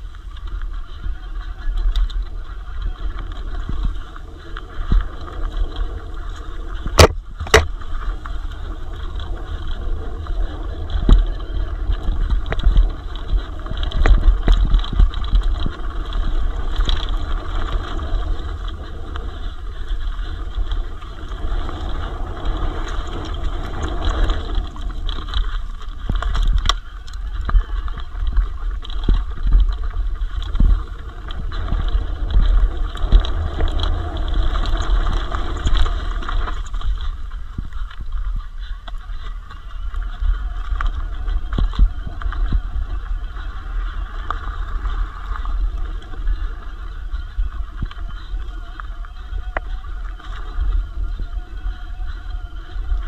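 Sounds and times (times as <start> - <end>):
bike clattering on rough trail: 0.0 - 53.0
wind buffeting microphone: 0.0 - 53.0
sharp knocks from terrain hits: 7.0 - 7.8.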